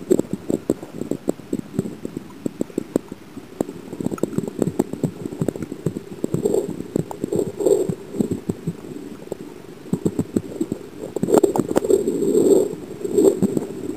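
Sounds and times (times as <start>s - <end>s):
muffled underwater swishing: 0.0s - 13.9s
small clicks and knocks: 0.1s - 7.5s.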